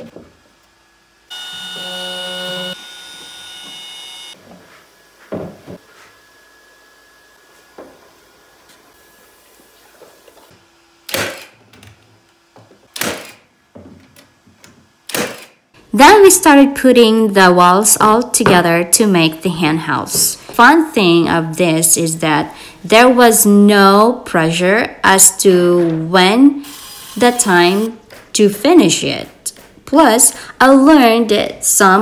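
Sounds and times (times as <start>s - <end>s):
power tool whine: 1.2s - 4.4s, 26.6s - 28.0s
nail gun shots: 11.1s - 11.6s, 12.9s - 13.4s, 15.1s - 15.6s.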